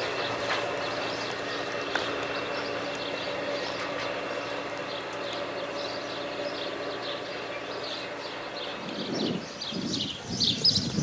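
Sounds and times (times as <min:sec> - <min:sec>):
birds chirping: 0:00.0 - 0:11.0
train wheels on track: 0:00.0 - 0:11.0.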